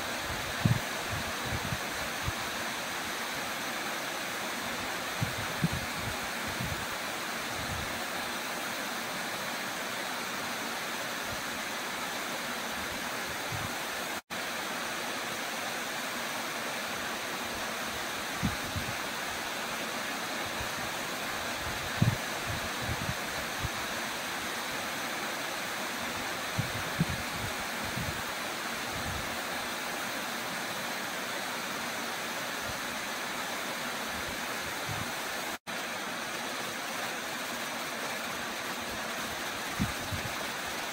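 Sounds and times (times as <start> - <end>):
waterfall rushing: 18.8 - 40.9.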